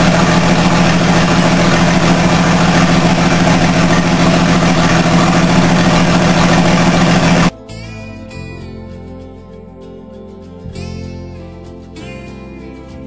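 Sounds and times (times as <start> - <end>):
gasoline engine running steadily: 0.0 - 7.5.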